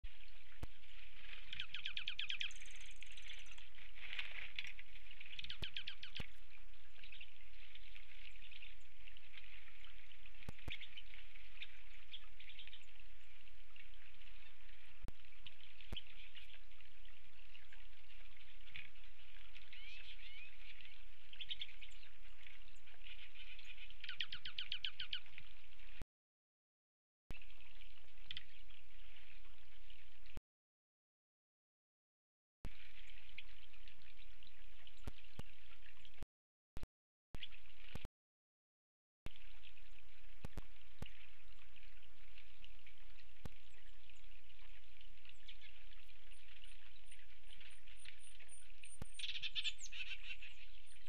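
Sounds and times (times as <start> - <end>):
birds twittering: 0.2 - 3.8, 4.6 - 9.2, 15.4 - 25.3, 45.3 - 51.0.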